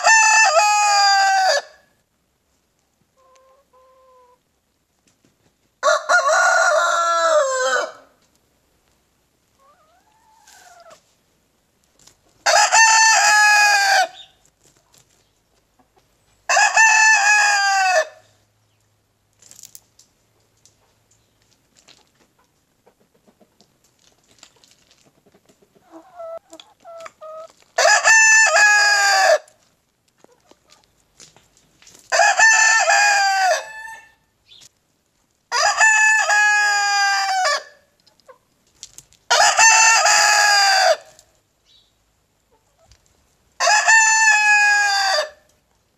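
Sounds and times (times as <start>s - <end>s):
rooster crowing: 0.0s - 1.8s, 5.8s - 8.1s, 12.4s - 14.2s, 16.5s - 18.2s, 27.8s - 29.5s, 32.1s - 34.2s, 35.5s - 37.8s, 39.3s - 41.1s, 43.6s - 45.4s.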